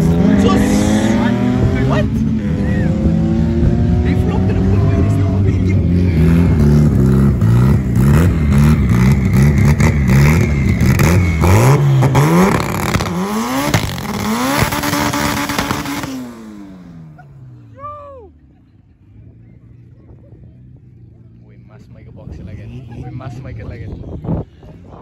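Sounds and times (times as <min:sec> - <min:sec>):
tires spinning in burnout: 0:00.0 - 0:16.4
pickup engine revving: 0:00.0 - 0:17.7.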